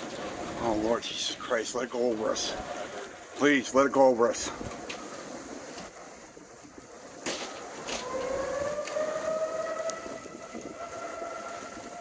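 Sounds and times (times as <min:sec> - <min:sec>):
warning siren winding up: 0:07.6 - 0:12.0.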